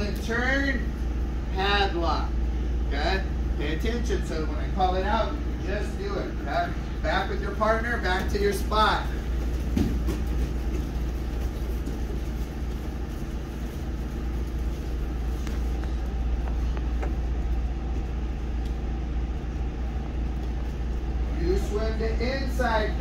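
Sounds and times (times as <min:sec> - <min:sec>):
low room noise rumble: 0:00.0 - 0:23.0
faint footstep knocks on mats: 0:09.6 - 0:10.8.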